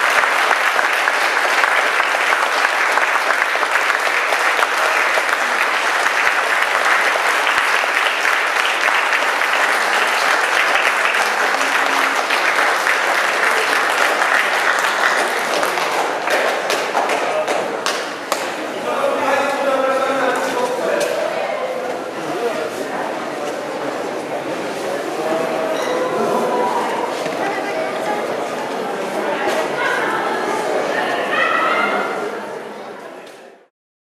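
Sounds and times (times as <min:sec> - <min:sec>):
audience applauding: 0:00.0 - 0:18.8.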